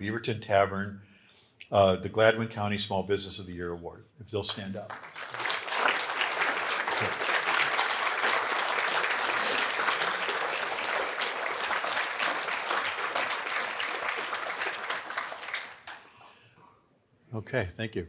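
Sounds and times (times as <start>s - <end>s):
audience applauding: 4.6s - 16.2s.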